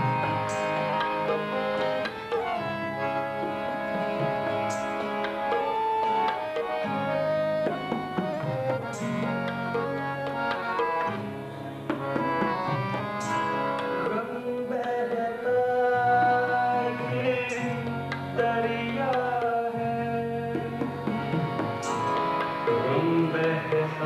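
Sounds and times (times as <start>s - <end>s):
harmonium chords: 0.0s - 24.0s
man singing gliding notes: 13.8s - 24.0s.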